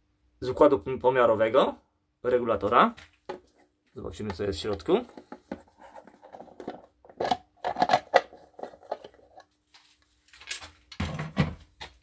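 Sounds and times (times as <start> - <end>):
plastic cover scraping: 4.8 - 9.4.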